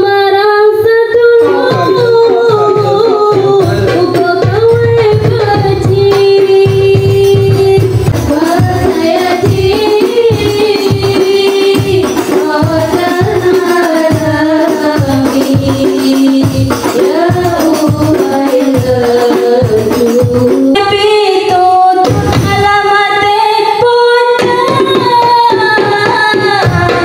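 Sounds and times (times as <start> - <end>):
women singing devotional song: 0.0 - 27.0
frame drums: 0.1 - 27.0
bass drum beat: 1.6 - 13.4.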